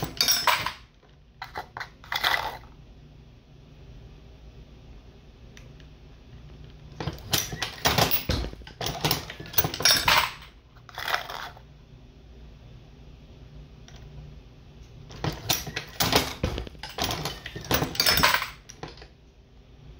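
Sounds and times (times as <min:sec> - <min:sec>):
brass cases clinking against metal: 0:00.0 - 0:00.9, 0:07.0 - 0:11.2, 0:15.1 - 0:19.1.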